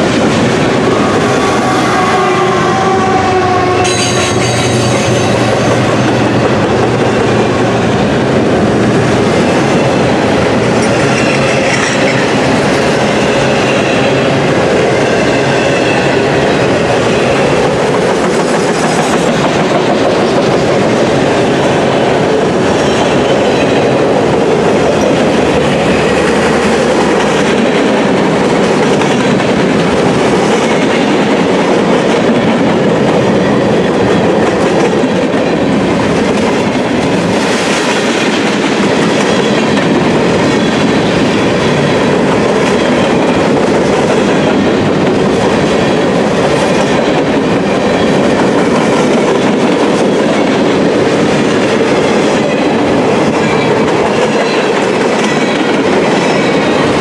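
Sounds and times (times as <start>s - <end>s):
freight train wheels rumbling on rails: 0.0s - 57.0s.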